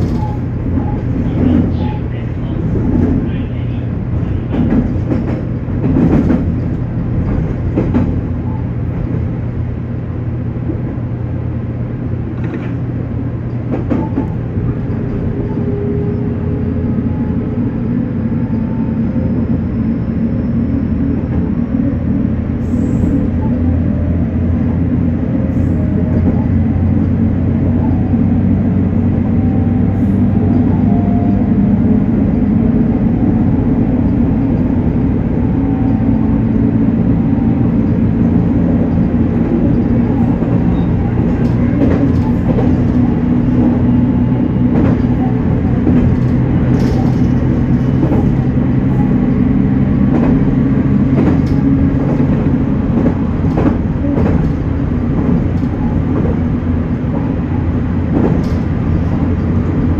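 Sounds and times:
electric train rumble and hum: 0.0 - 59.9
train wheels clacking: 4.2 - 9.2, 35.7 - 59.9.

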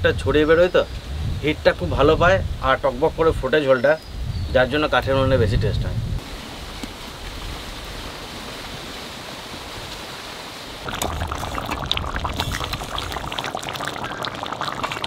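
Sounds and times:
curry bubbling with small pops: 10.8 - 15.0.

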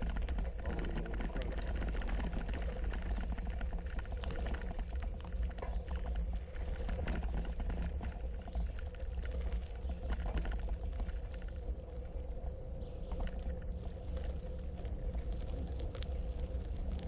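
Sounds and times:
bicycle tyres crunching on gravel: 0.0 - 11.6
steady low rumble: 0.0 - 17.0.

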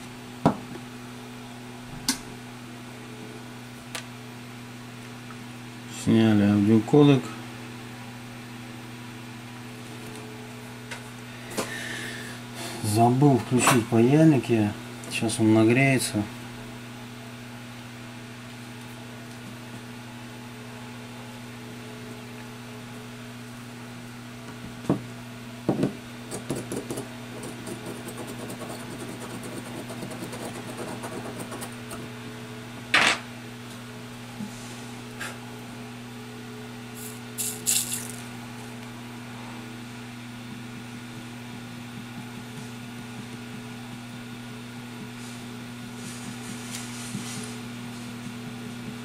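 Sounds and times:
low electrical hum: 0.0 - 49.0
tools clicking and clattering: 37.0 - 38.2.

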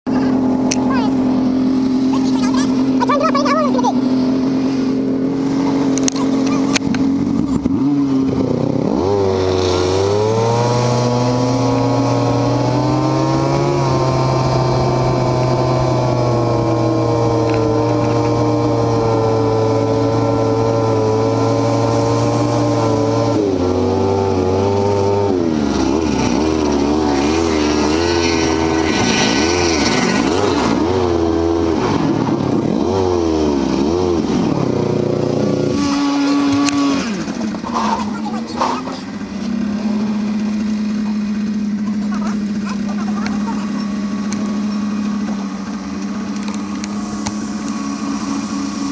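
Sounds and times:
snowmobile engine idling and revving: 0.0 - 48.9.

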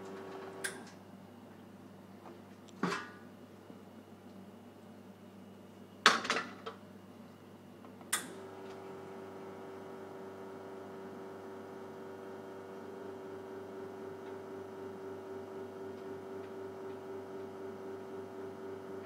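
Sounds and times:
espresso pump humming: 0.0 - 0.7, 8.4 - 19.0.

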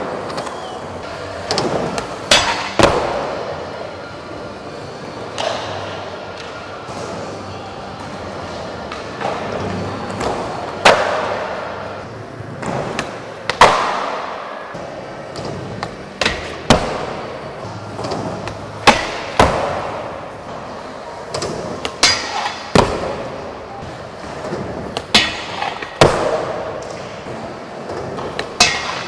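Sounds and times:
skateboard clacks echoing: 8.4 - 29.0.

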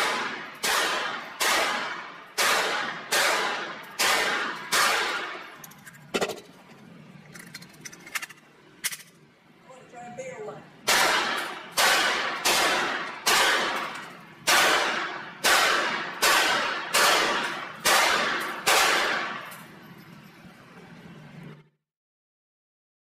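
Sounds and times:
pistol shots echoing: 0.0 - 5.5, 10.8 - 19.5.

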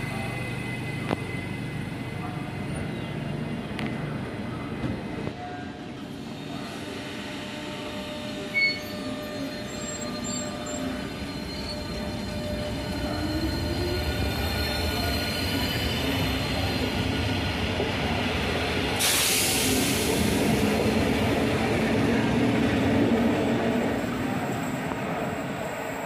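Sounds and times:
loud hiss: 18.9 - 20.7.

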